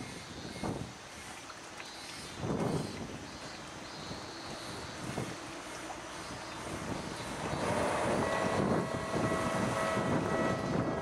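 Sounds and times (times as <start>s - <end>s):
wind buffeting microphone: 0.0s - 1.4s, 2.1s - 11.0s.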